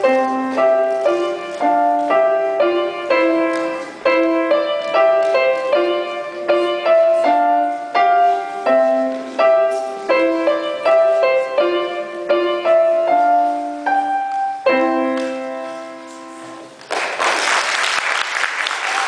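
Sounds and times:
slow grand piano melody: 0.0s - 17.0s
applause: 16.8s - 19.0s.

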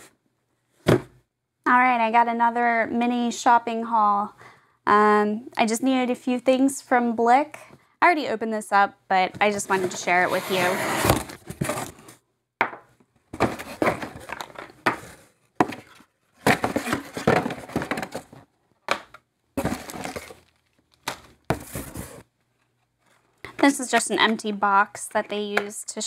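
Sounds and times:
plastic rustling and scraping: 9.6s - 12.2s, 13.3s - 18.5s, 19.6s - 23.5s
cardboard box being opened: 19.6s - 20.4s.

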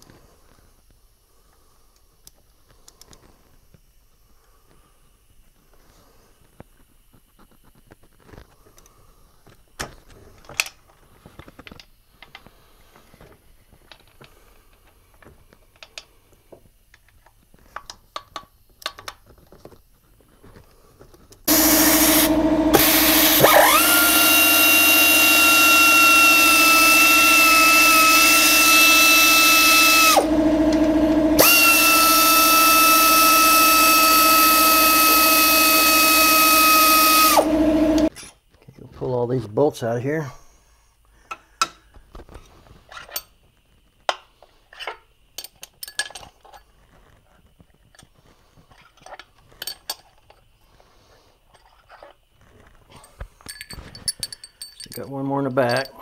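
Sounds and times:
pneumatic ratchet whining: 21.5s - 38.1s.

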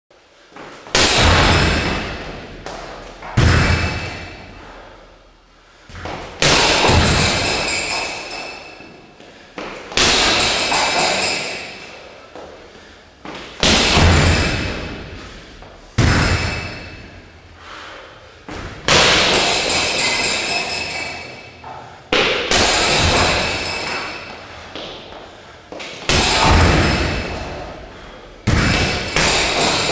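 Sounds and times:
kicks thudding on punching bag: 0.9s - 4.4s, 5.9s - 7.6s, 13.6s - 15.3s, 16.0s - 17.1s, 18.5s - 19.8s, 22.1s - 23.7s, 26.1s - 27.8s, 28.4s - 29.9s
chains jangling: 19.6s - 21.5s.

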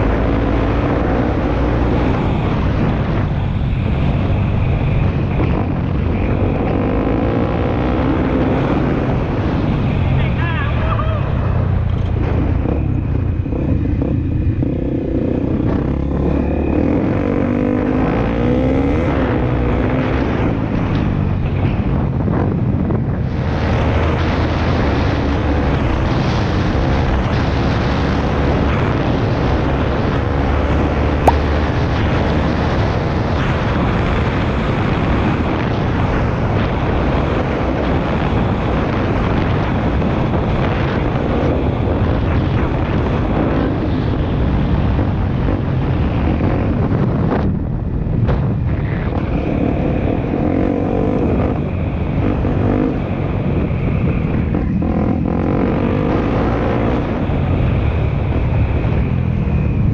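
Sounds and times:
motorcycle engine revving: 11.8s - 21.1s, 23.5s - 36.8s, 49.1s - 59.6s
wind buffeting microphone: 31.2s - 59.9s
sharp click: 31.3s - 31.7s.

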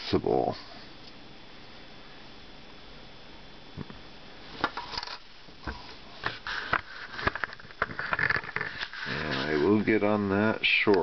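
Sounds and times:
rustling: 4.5s - 10.0s.

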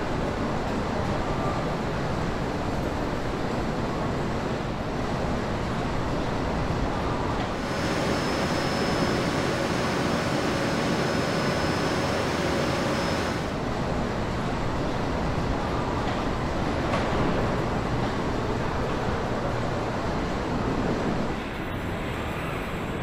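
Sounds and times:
industrial machinery rushing: 7.6s - 13.6s
thin high whine: 7.6s - 13.6s.

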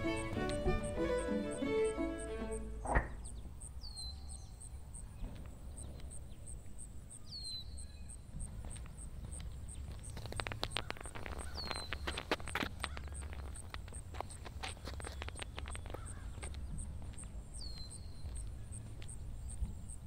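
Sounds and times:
footsteps on pavement: 0.0s - 1.3s, 7.6s - 20.0s
bird chirping: 0.0s - 20.0s.

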